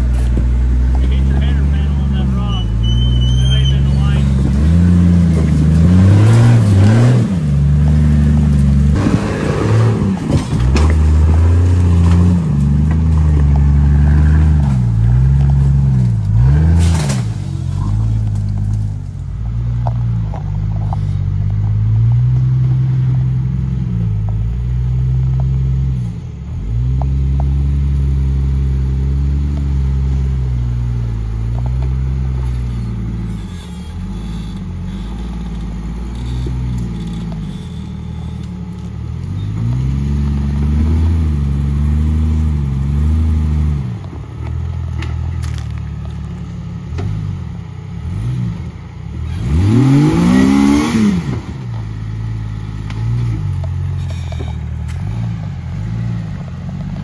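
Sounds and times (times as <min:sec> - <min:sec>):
engine revving under load: 0:00.0 - 0:45.8, 0:46.8 - 0:57.0.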